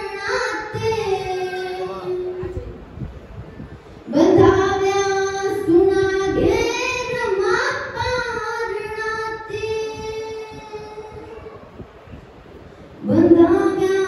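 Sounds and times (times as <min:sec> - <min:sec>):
girl singing: 0:00.0 - 0:02.5, 0:04.1 - 0:11.5, 0:13.0 - 0:14.0.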